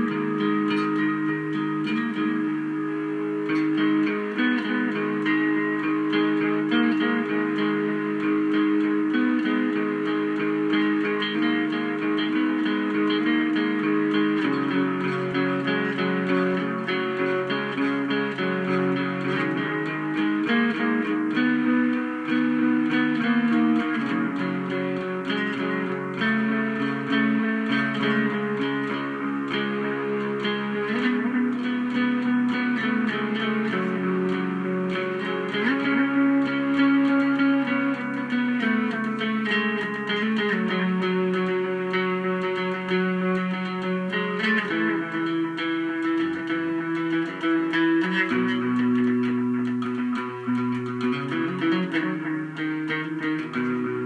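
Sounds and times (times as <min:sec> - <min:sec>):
fuzzy bass guitar notes: 0:00.0 - 0:54.0.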